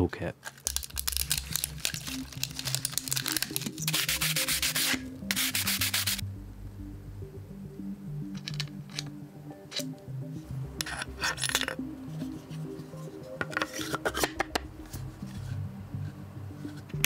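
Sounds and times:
background music: 0.0s - 17.0s
metal hand tools clicking: 8.4s - 10.0s, 10.8s - 11.8s.

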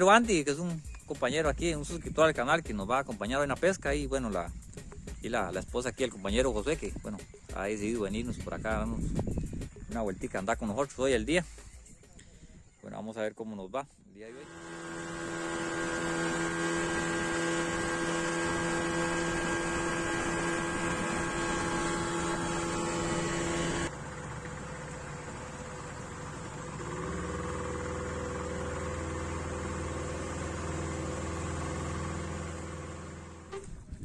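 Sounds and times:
outboard motor running: 0.0s - 12.5s, 14.2s - 34.0s.

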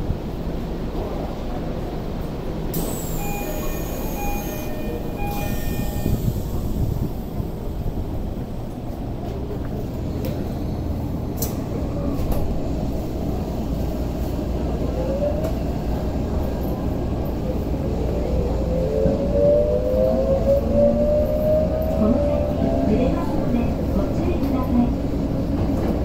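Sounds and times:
subway wheels rumbling: 0.0s - 26.0s.

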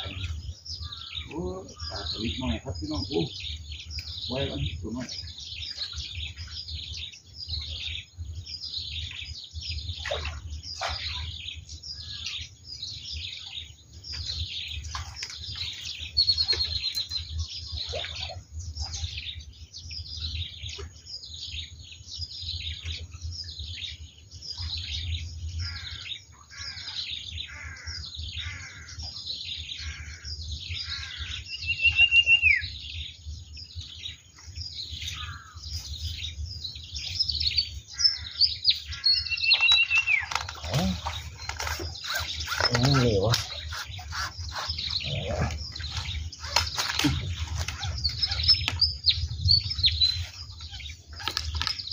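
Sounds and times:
small birds chirping: 0.0s - 51.9s
clear bird whistles: 31.5s - 32.7s, 39.2s - 40.3s.

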